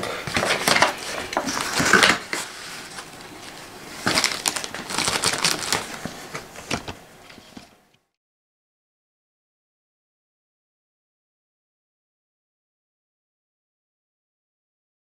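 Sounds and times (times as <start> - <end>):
cardboard and plastic wrap rustling: 0.0 - 7.8.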